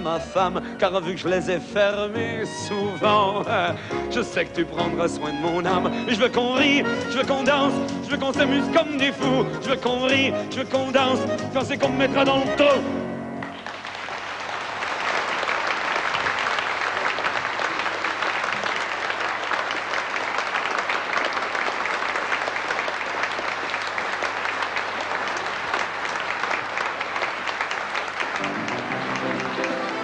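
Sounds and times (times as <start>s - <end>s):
audience applause: 13.4s - 30.0s.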